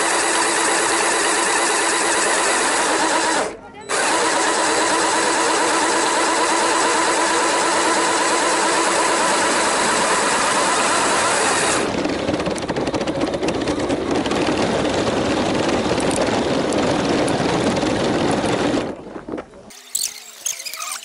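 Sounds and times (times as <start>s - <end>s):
toy electric motors whining: 0.0s - 11.9s, 19.7s - 21.0s
dull rough noise with crackles: 11.8s - 21.0s.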